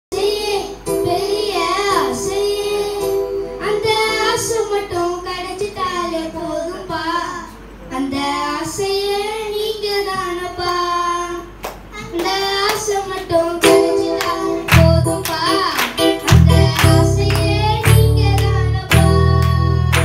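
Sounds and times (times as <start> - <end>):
children singing into microphones: 0.1 - 20.0
musical accompaniment with bass: 13.6 - 20.0.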